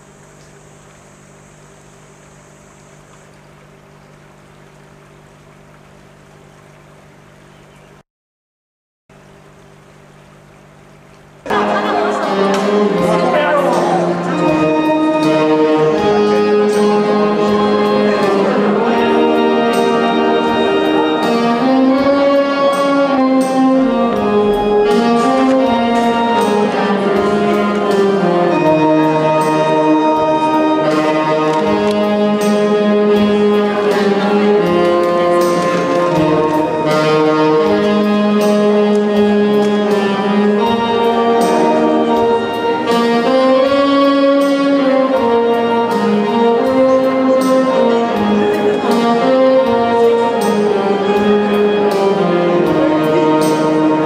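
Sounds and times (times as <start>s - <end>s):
instrumental music with held notes: 11.4s - 54.0s
steady beat: 11.5s - 44.2s.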